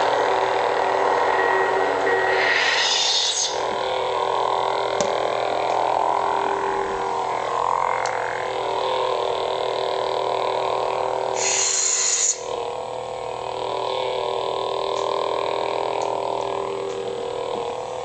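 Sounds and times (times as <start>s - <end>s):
electronic blade hum: 0.0s - 18.0s
short hissing burst: 11.4s - 12.4s.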